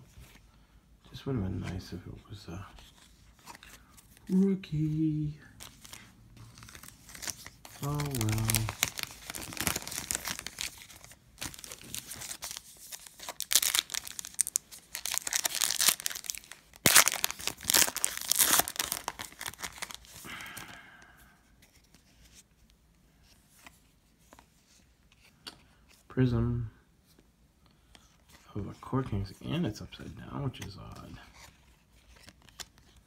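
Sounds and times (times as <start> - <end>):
foil wrapper tearing and crinkling: 6.6 - 20.2.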